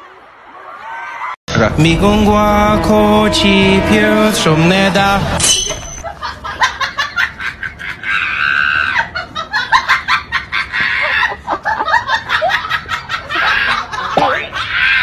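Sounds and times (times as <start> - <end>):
high-pitched cackling laughter: 6.0 - 15.0.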